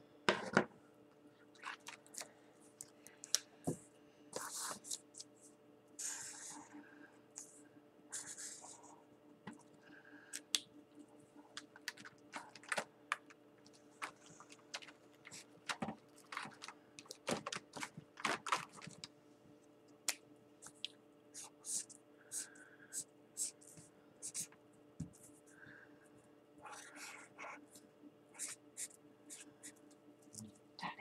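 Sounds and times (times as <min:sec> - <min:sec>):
faint steady hum: 0:00.0 - 0:31.0
marker scratching on paper: 0:08.1 - 0:08.9, 0:21.4 - 0:22.5, 0:23.4 - 0:24.5, 0:28.4 - 0:29.8.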